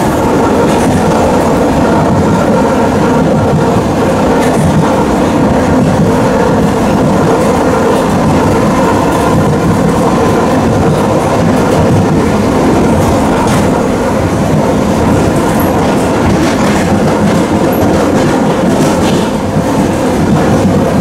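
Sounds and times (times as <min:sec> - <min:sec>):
rail joint clicks: 0:00.0 - 0:21.0
train wheels rumbling on rails: 0:00.0 - 0:21.0.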